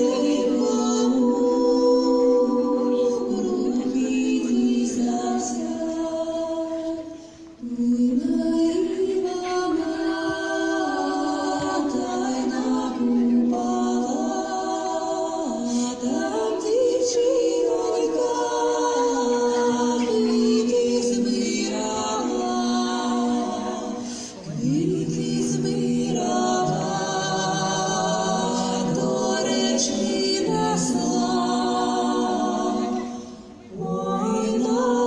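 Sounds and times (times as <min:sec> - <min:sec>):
choir singing unaccompanied: 0:00.0 - 0:35.0.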